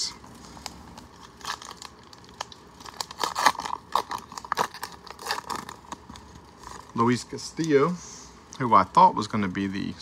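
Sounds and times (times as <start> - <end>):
wrapper crinkling: 0.2 - 7.7
wrapper being torn open: 0.6 - 7.0.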